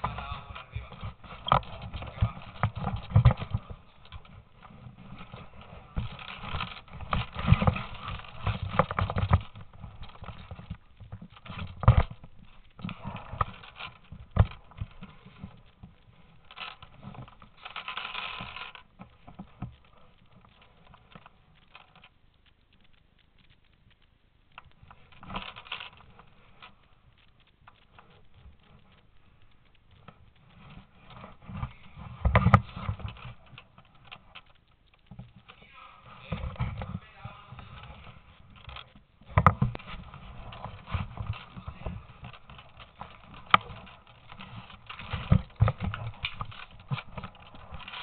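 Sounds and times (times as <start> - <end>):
irregular knocks and clicks: 0.0 - 35.6, 36.2 - 48.0.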